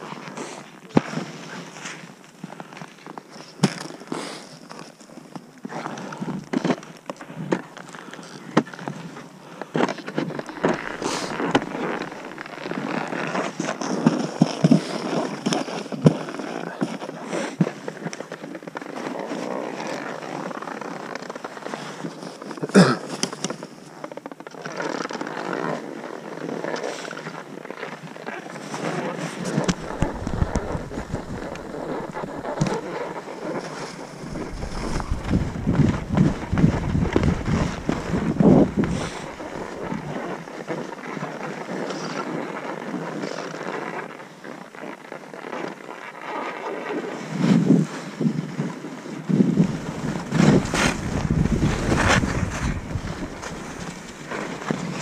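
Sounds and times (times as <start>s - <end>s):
skis scraping over snow: 9.8s - 15.3s, 28.6s - 40.9s, 49.0s - 55.0s
wind buffeting microphone: 10.3s - 13.1s, 29.5s - 40.5s, 49.3s - 55.0s
ski poles clicking: 29.5s - 40.3s, 49.6s - 55.0s.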